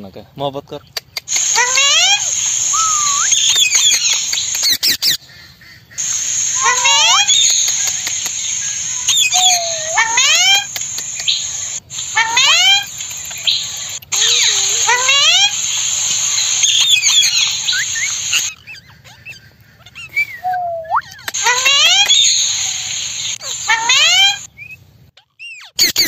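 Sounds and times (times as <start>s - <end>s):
steady high hiss: 1.2s - 5.0s, 6.0s - 18.6s, 21.2s - 24.5s
parakeets calling: 1.2s - 19.4s, 21.2s - 24.5s.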